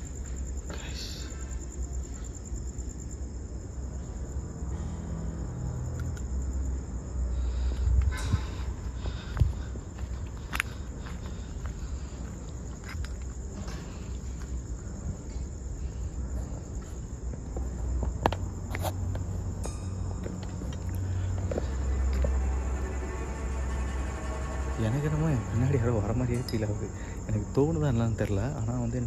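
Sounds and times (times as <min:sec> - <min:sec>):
crickets chirping: 0:00.0 - 0:29.0
footsteps on debris: 0:09.1 - 0:14.6.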